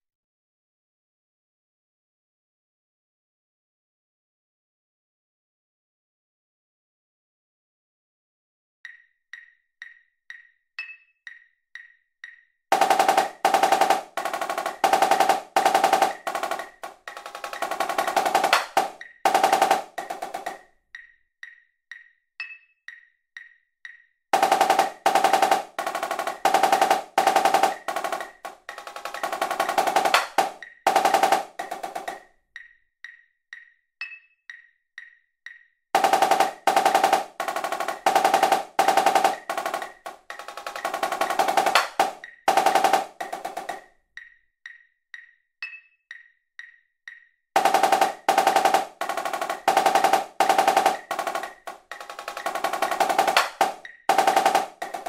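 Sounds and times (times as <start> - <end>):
metronome click: 8.8 - 12.6, 20.0 - 24.2, 31.6 - 35.8, 43.8 - 47.4
marching snare drum: 12.7 - 20.6, 24.4 - 32.2, 36.0 - 43.8, 47.6 - 55.0.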